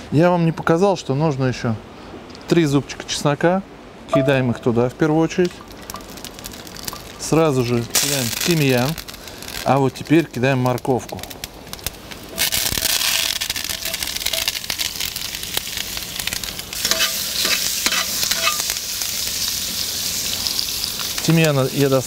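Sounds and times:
carrots sizzling in hot oil: 0:05.4 - 0:22.0
tongs clicking and scraping pot: 0:12.4 - 0:14.6, 0:16.8 - 0:18.6.

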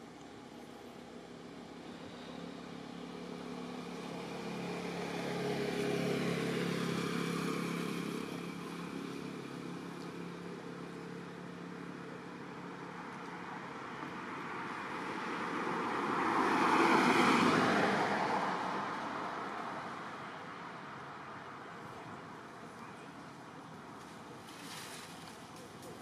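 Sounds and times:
vehicle passing by: 0:01.2 - 0:21.1.

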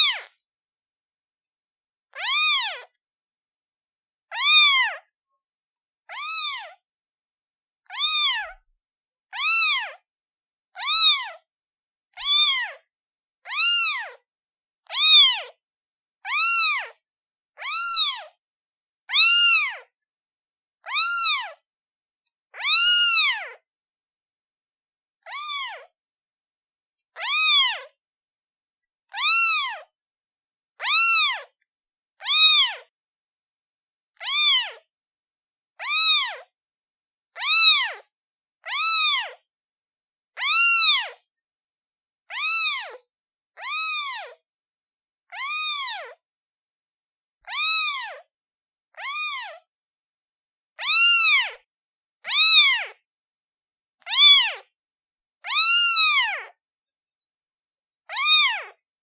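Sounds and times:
kitten meowing: 0:00.0 - 0:00.4, 0:02.1 - 0:02.9, 0:04.3 - 0:05.1, 0:06.1 - 0:06.8, 0:07.8 - 0:08.6, 0:09.3 - 0:10.0, 0:10.8 - 0:11.4, 0:12.1 - 0:12.8, 0:13.4 - 0:14.2, 0:14.9 - 0:15.5, 0:16.2 - 0:17.0, 0:17.6 - 0:18.3, 0:19.1 - 0:19.9, 0:20.8 - 0:21.6, 0:22.5 - 0:23.6, 0:25.2 - 0:25.9, 0:27.2 - 0:27.9, 0:29.1 - 0:29.9, 0:30.8 - 0:31.6, 0:32.2 - 0:32.9, 0:34.2 - 0:34.9, 0:35.8 - 0:36.5, 0:37.4 - 0:39.4, 0:40.3 - 0:41.2, 0:42.3 - 0:44.4, 0:45.3 - 0:46.2, 0:47.4 - 0:48.3, 0:48.9 - 0:49.7, 0:50.8 - 0:53.0, 0:54.0 - 0:54.6, 0:55.4 - 0:56.6, 0:58.1 - 0:58.8.

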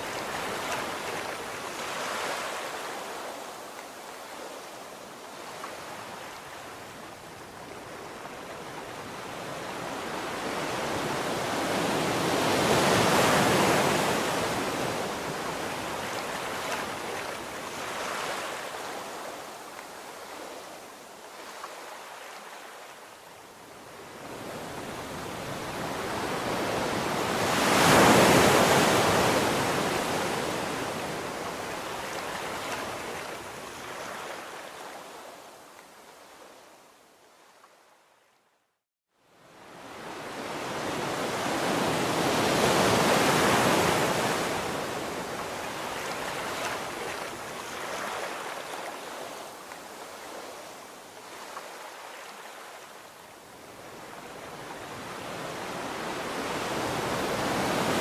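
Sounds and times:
ocean surf breaking on beach: 0:00.0 - 0:23.1, 0:23.8 - 0:35.5, 0:39.5 - 0:58.0.

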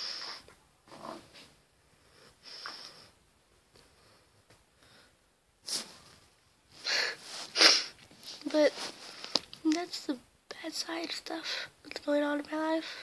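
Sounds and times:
soft sniffs and snorting breaths: 0:02.0 - 0:03.2, 0:03.8 - 0:09.6.

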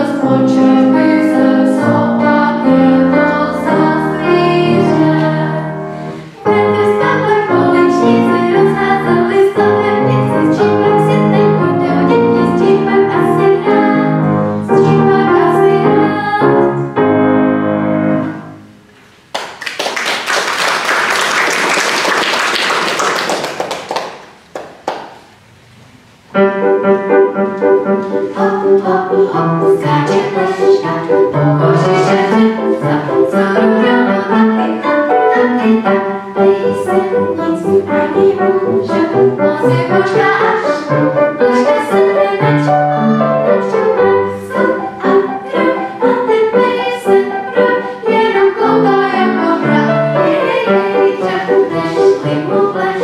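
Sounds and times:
vocal quartet singing: 0:00.0 - 0:17.0, 0:27.6 - 0:53.0
grand piano accompaniment: 0:00.0 - 0:53.0
audience applauding: 0:19.3 - 0:25.3.

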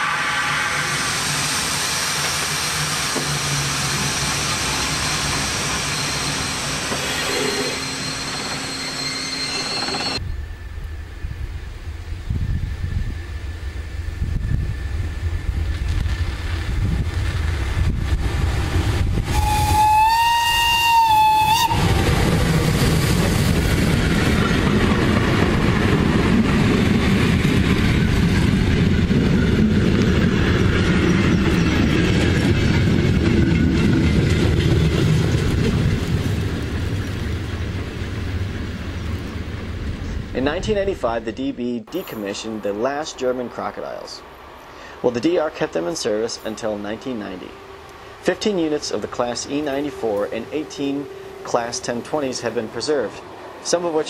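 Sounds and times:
electric locomotive rumbling: 0:00.0 - 0:41.0, 0:41.9 - 0:54.0
locomotive horn blast: 0:19.3 - 0:22.0
train wheels clattering on rails: 0:21.8 - 0:37.0.

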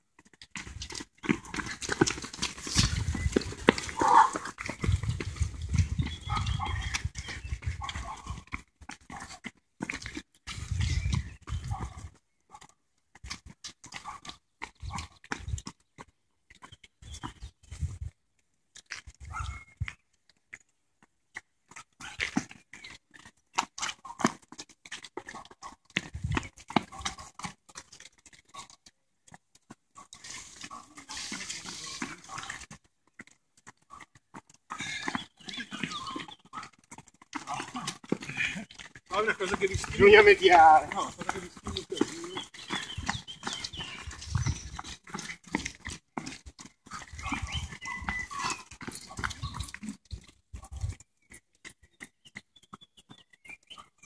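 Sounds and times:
runners breathing: 0:00.0 - 0:12.2, 0:21.0 - 0:53.9
footsteps slapping on brick: 0:00.2 - 0:18.1, 0:18.8 - 0:53.2
heavy breathing: 0:34.7 - 0:35.3.

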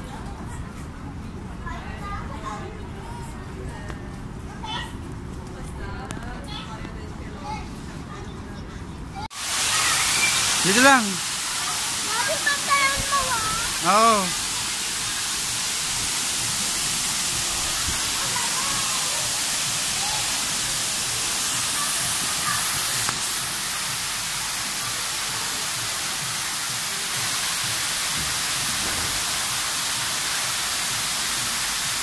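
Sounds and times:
fountain water pouring into pool: 0:09.4 - 0:32.0.

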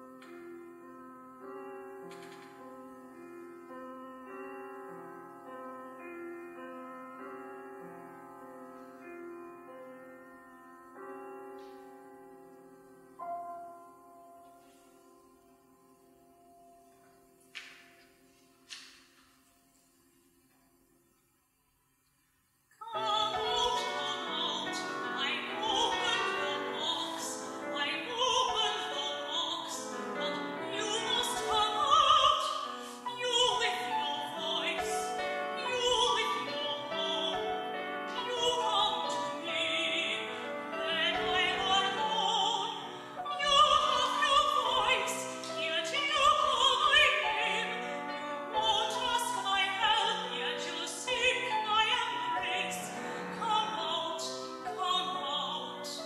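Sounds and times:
piano accompaniment: 0:00.0 - 0:19.8, 0:22.8 - 0:56.0
soprano singing opera: 0:22.8 - 0:56.0.

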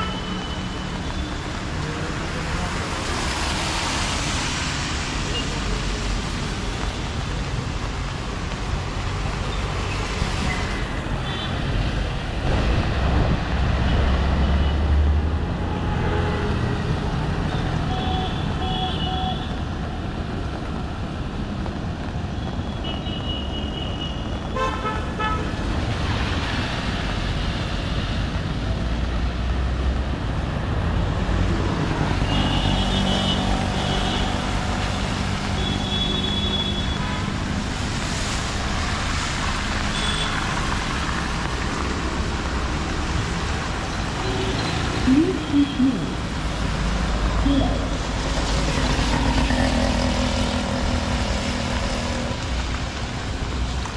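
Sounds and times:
traffic engines rumbling: 0:00.0 - 0:53.9
tyre hiss on wet road: 0:16.6 - 0:48.8.

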